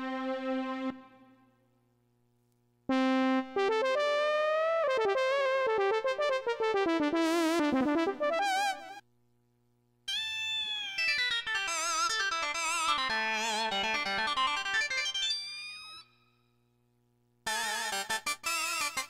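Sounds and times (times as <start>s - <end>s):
synthesizer melody: 2.9s - 8.9s.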